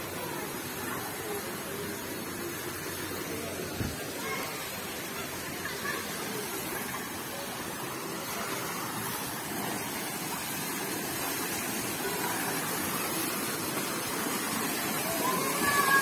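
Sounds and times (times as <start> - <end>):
faint voices: 0.0 - 16.0
water falling into a pool: 0.0 - 16.0.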